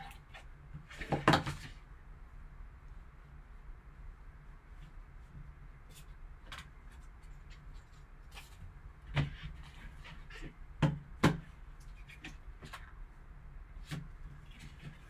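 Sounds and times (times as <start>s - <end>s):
rustling of card and foam: 4.6s - 10.6s, 13.8s - 15.0s.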